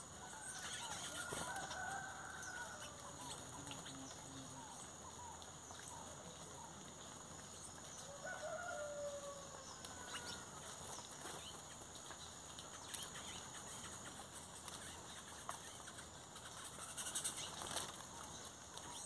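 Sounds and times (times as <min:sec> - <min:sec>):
chickens clucking: 0:00.1 - 0:04.3.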